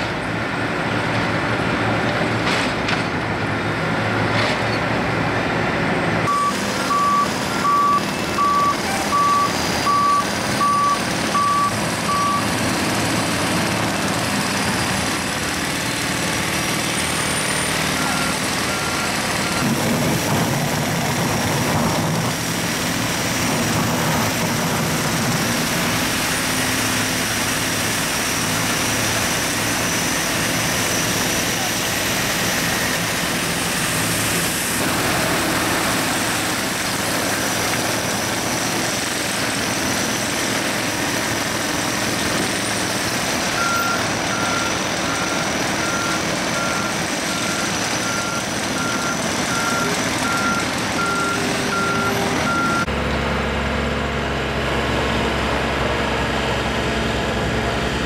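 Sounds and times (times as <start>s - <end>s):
heavy construction machinery running: 0.0s - 58.0s
backup alarm beeping: 6.3s - 12.5s.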